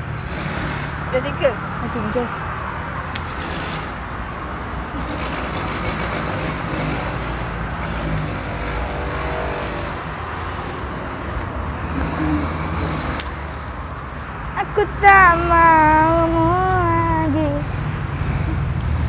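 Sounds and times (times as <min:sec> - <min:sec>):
low traffic rumble: 0:00.0 - 0:19.0.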